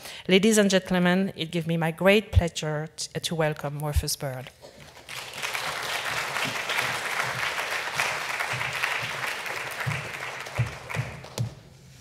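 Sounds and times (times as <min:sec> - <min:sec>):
audience applauding: 0:04.9 - 0:11.6.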